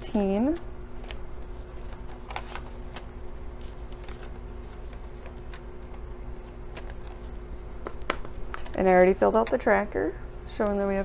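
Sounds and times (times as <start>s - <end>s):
steady low hum: 0.0s - 11.0s
paper rustling: 0.5s - 8.8s.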